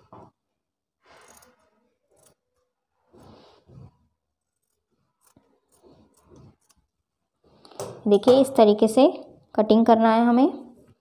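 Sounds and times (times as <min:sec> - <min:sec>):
scissors snipping fabric: 0:01.2 - 0:02.5, 0:04.5 - 0:06.9.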